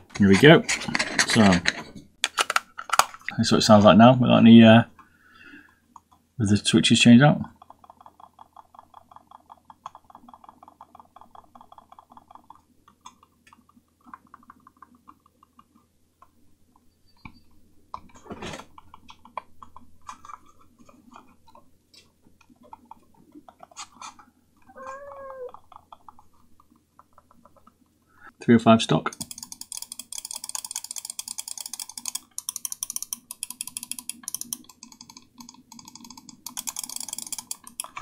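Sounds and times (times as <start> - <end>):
rising and falling call: 24.7 - 25.6.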